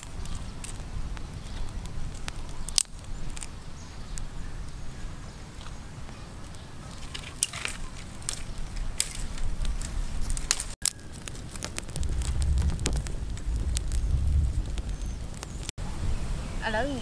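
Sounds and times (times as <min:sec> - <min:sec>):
sticks snapping: 0:00.0 - 0:04.3, 0:06.4 - 0:15.7
twig fire crackling and popping: 0:00.0 - 0:15.8
low rumble: 0:08.8 - 0:16.6.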